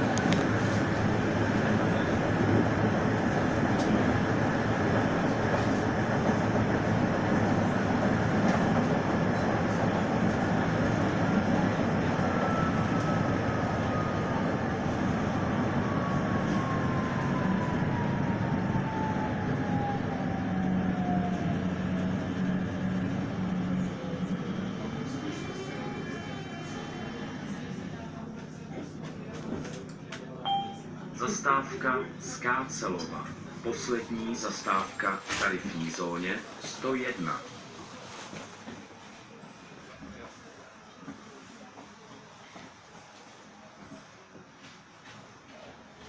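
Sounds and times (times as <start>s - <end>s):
tram rumbling: 0.0s - 46.0s.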